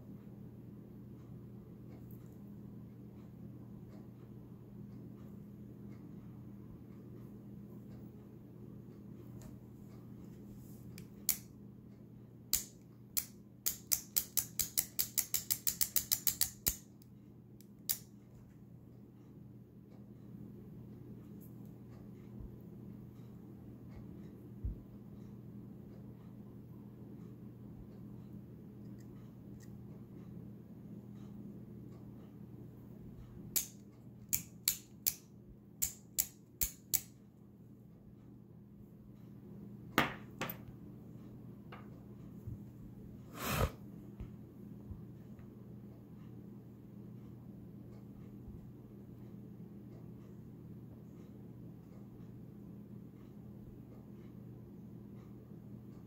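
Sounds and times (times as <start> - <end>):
switchblade metal clicks: 12.5 - 16.8, 33.6 - 35.2, 35.8 - 37.1.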